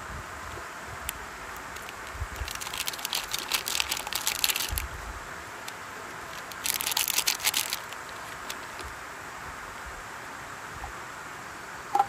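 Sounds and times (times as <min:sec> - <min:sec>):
crinkling and rustling handling: 0:01.5 - 0:05.0, 0:05.6 - 0:09.0.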